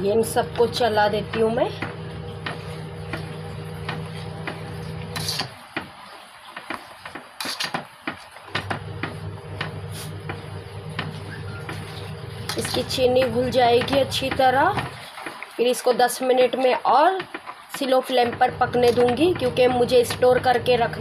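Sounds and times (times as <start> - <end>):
ladle stirring thick sauce: 0.6 - 21.0
ladle knocking on pan: 12.5 - 15.4.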